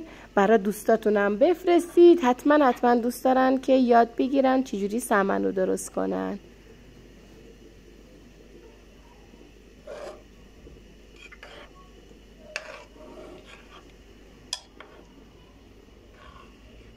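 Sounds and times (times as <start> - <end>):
spoon scraping thick paste: 9.8 - 10.2, 11.2 - 11.8, 12.4 - 13.9, 16.1 - 16.6.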